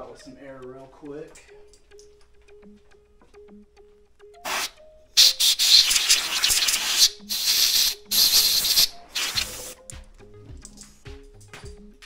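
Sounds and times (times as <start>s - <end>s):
compressed air blow gun hissing: 4.4s - 9.8s.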